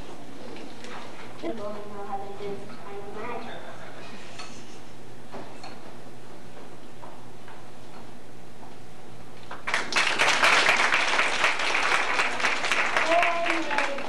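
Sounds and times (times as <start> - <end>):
audience clapping: 9.4 - 14.0.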